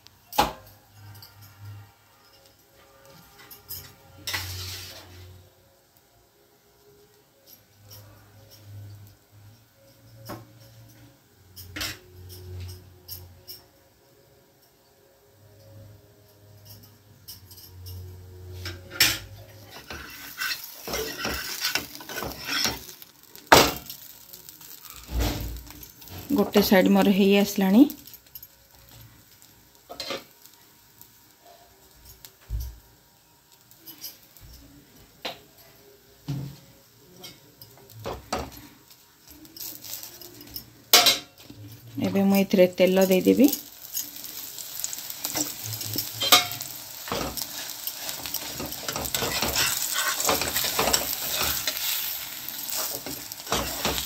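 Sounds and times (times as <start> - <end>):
spatula scraping metal pan: 4.2 - 5.4, 18.6 - 23.0, 46.2 - 54.0
spatula knocking and scraping pan: 46.2 - 52.0.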